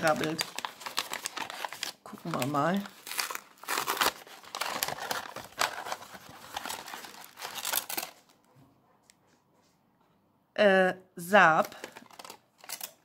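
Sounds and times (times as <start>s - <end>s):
gift paper crinkling: 0.0s - 8.5s, 11.5s - 13.0s.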